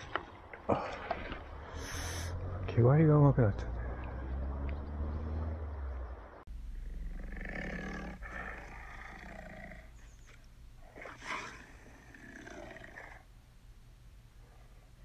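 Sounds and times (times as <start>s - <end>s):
tiger roaring: 6.8s - 10.2s, 10.8s - 13.2s.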